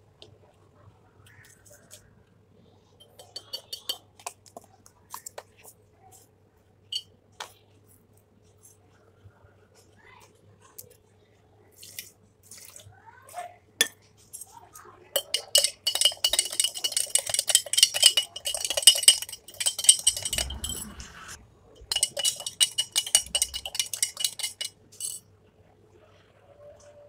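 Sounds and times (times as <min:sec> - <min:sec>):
spoon clinking against glass mug: 0:03.0 - 0:04.0, 0:15.2 - 0:21.0, 0:21.8 - 0:25.2.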